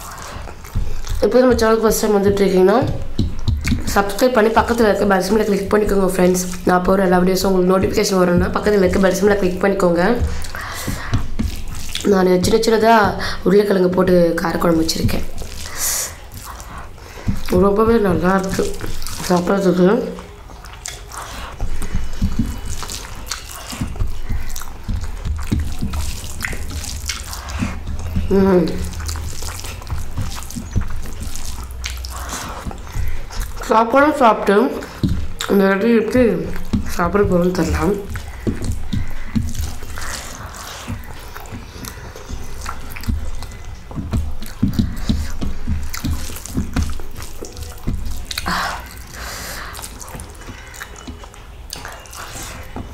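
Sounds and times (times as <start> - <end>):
person chewing rice: 0.0 - 52.9
food squished by hand on plate: 10.2 - 13.4, 14.5 - 17.6, 20.1 - 33.7, 36.4 - 52.9.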